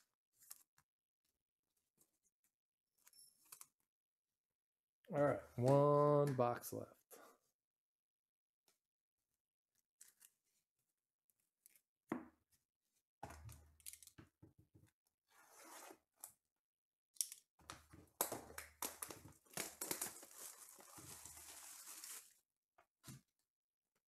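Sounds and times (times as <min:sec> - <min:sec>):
shrink-wrap crinkling and tearing: 0:18.3 - 0:22.4.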